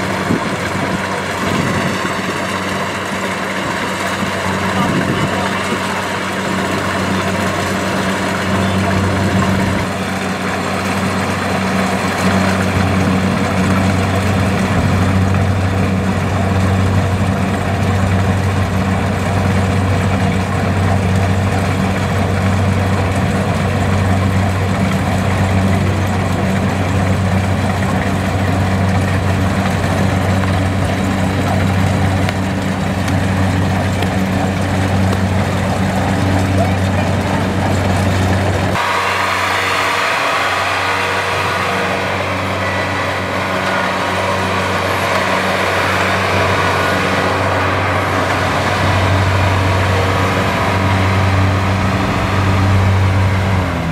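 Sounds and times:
combine harvester diesel engine: 0.0s - 53.9s.

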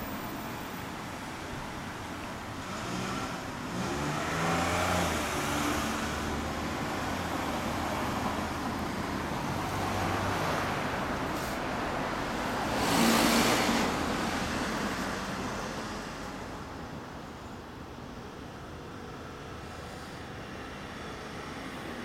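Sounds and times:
street traffic: 0.0s - 22.0s
vehicle passing by: 2.6s - 16.2s.

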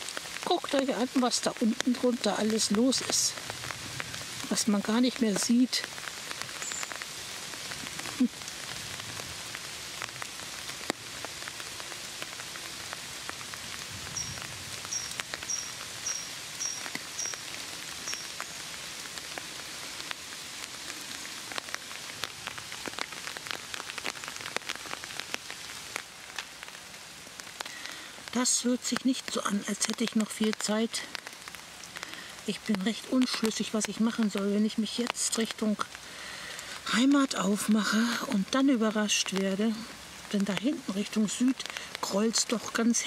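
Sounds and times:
light rain falling through leaves: 0.0s - 43.0s
raindrops tapping: 0.0s - 43.0s
small bird chirping: 6.6s - 7.0s, 14.1s - 17.4s, 18.0s - 18.4s.

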